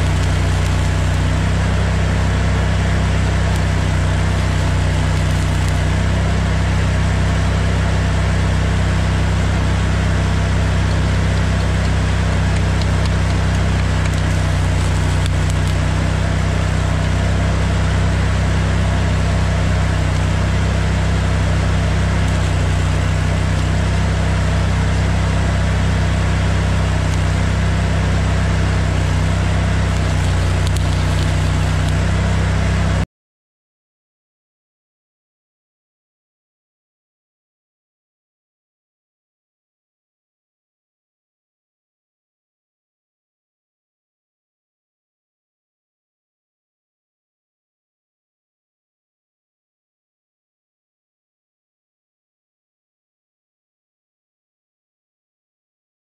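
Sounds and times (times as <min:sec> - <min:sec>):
welding arc crackling: 0:00.0 - 0:07.4, 0:08.4 - 0:33.0
engine idling: 0:00.0 - 0:33.0.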